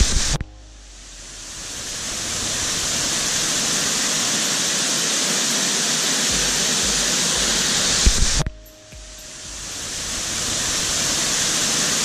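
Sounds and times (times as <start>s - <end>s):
low rumble: 0.1s - 3.8s, 6.3s - 11.4s
waterfall rushing: 1.1s - 12.0s
water running over rocks: 1.9s - 8.4s.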